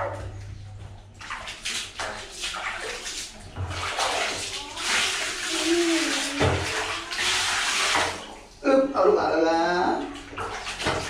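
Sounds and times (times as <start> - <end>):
water splashing in a plastic basin: 0.0 - 8.6, 9.8 - 11.0.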